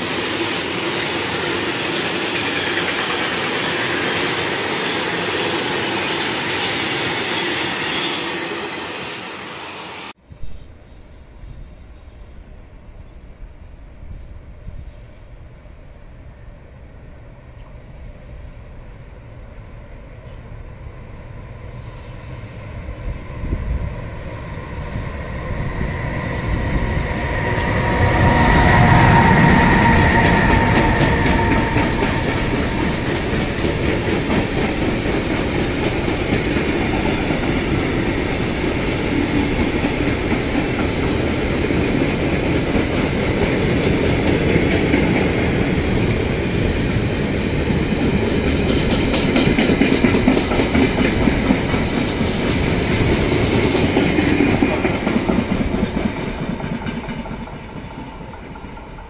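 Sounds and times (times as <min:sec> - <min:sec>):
locomotive high steady tone: 0:00.0 - 0:49.4
train wheels rumbling on rail: 0:00.0 - 0:59.0
wheels clicking over rail joints: 0:47.7 - 0:59.0.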